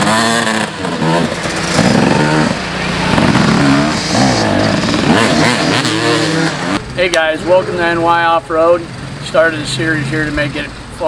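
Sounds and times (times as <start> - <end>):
dirt bike engine revving: 0.0 - 8.1.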